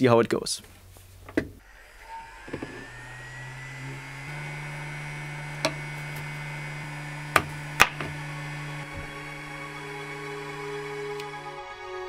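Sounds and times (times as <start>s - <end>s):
hot air gun whining: 1.6s - 11.6s
sharp knocks: 7.4s - 8.2s.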